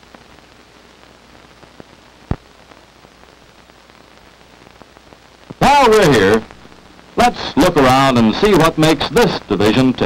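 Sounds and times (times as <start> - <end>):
old film soundtrack hiss and crackle: 0.0 - 10.0.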